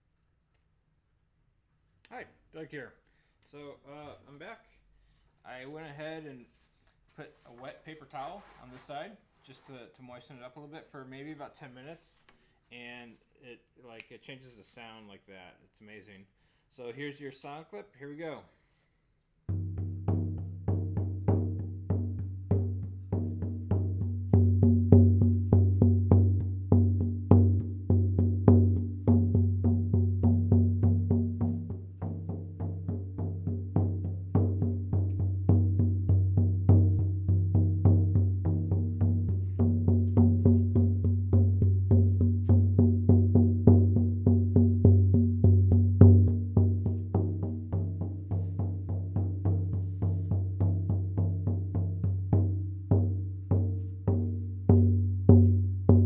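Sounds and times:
frame drum booming: 0:19.5 - 0:56.0.

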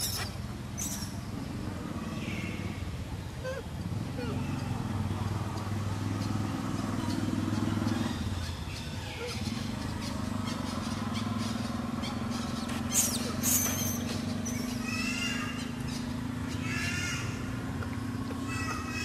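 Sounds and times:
wavering monkey calls: 0:03.4 - 0:04.9, 0:07.0 - 0:19.0
monkey squeals: 0:09.0 - 0:09.7, 0:12.8 - 0:15.6.

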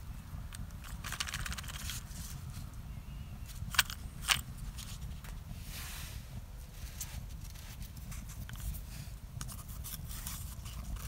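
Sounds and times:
low steady rumble: 0:00.0 - 0:11.0
matches rattling in matchbox: 0:00.5 - 0:02.4, 0:03.5 - 0:05.1.

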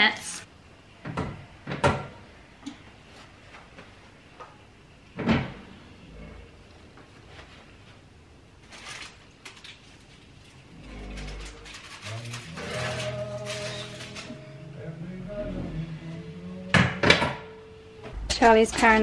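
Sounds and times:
cast-iron oven doors clunking: 0:16.7 - 0:17.5.

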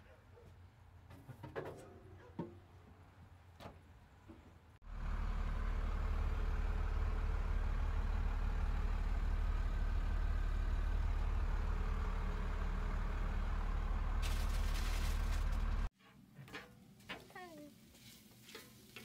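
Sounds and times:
engine idling low rumble: 0:04.8 - 0:15.9.

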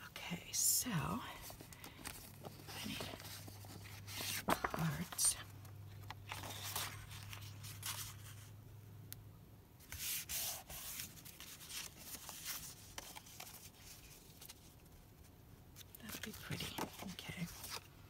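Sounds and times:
paper sliding and rustling: 0:01.5 - 0:05.4, 0:06.3 - 0:08.5, 0:09.8 - 0:14.8.

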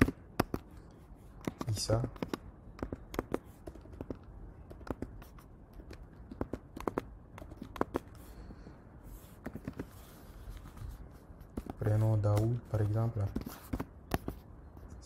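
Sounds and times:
computer keyboard keys clicking: 0:01.4 - 0:05.1, 0:05.8 - 0:08.1.

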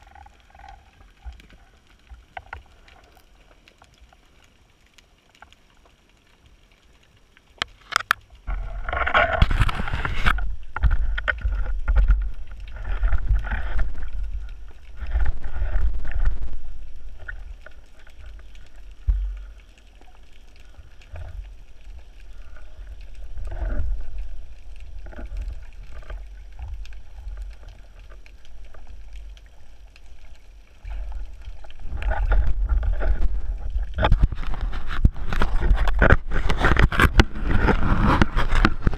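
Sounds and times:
muffled underwater rumble: 0:00.0 - 0:05.5, 0:08.2 - 0:38.9.

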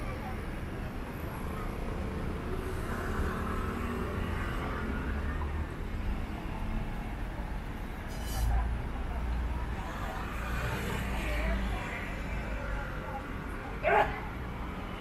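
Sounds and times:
cars and scooters passing: 0:00.0 - 0:15.0
short hiss: 0:08.1 - 0:08.6.

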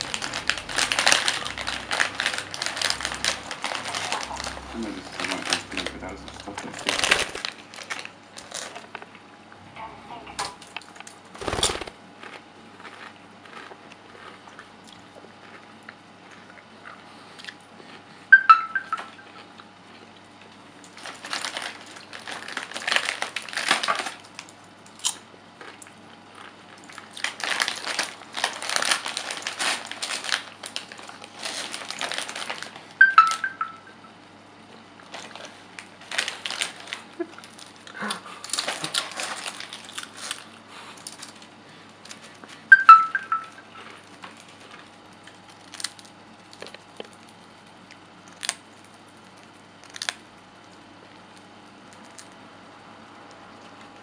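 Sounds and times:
chip bag crinkling: 0:00.0 - 0:09.1, 0:10.8 - 0:16.5, 0:20.7 - 0:33.5, 0:35.0 - 0:47.6, 0:48.2 - 0:52.4
short high tones: 0:42.7 - 0:43.7.

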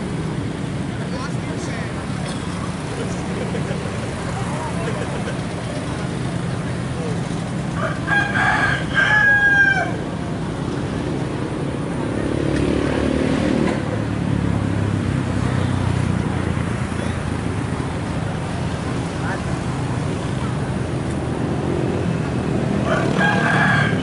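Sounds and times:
rooster crowing: 0:07.8 - 0:10.0, 0:22.8 - 0:24.0.

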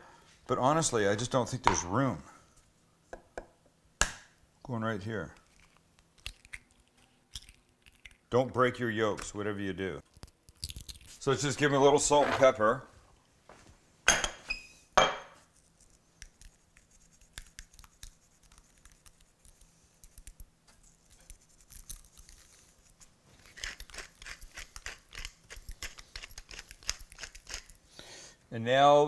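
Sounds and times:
pepper mill grinding: 0:10.1 - 0:11.3, 0:15.6 - 0:27.8.

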